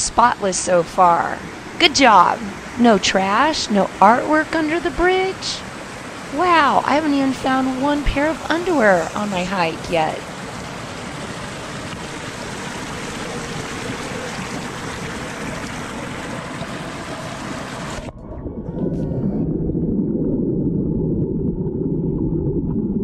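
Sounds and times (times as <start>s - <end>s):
muffled underwater rush: 0.4s - 23.0s
creek rushing over rocks: 8.2s - 18.1s.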